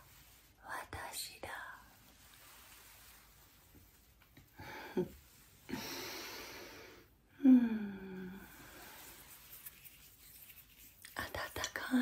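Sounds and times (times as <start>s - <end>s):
woman sighing: 5.7s - 8.5s.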